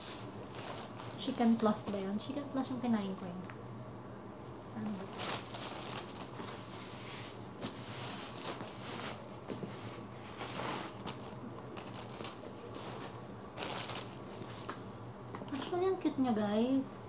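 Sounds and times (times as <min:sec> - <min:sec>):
plastic wrapping rustling: 0:00.0 - 0:02.6, 0:04.8 - 0:14.9.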